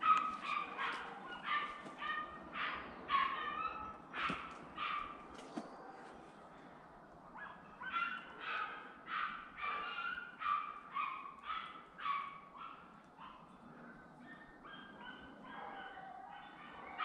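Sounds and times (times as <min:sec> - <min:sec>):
dog barking rapidly: 0:00.0 - 0:05.2.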